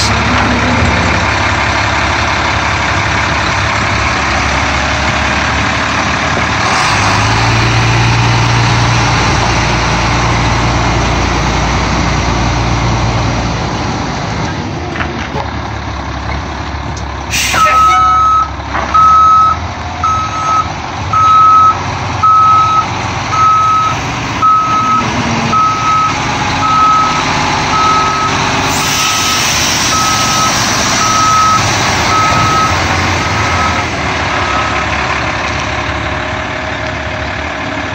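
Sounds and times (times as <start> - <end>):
truck engine running: 0.0 - 37.9
truck backup alarm beeping: 17.4 - 35.0.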